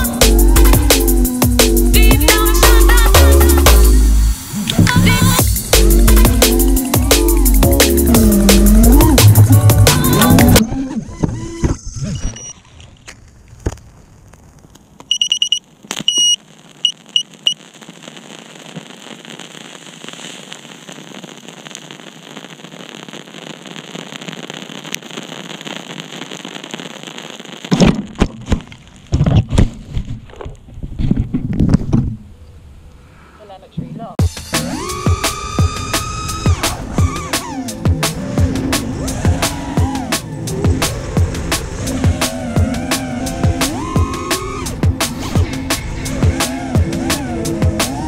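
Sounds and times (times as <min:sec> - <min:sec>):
outdoor hiss: 0:00.0 - 0:10.2, 0:13.6 - 0:29.2, 0:32.4 - 0:48.0
drone buzzer beeps: 0:15.1 - 0:17.6.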